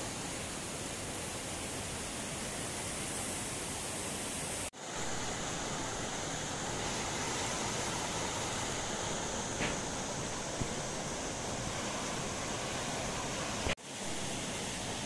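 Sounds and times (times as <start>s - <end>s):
steady rushing hiss: 0.0s - 15.0s
stream rushing over rocks: 0.0s - 15.0s.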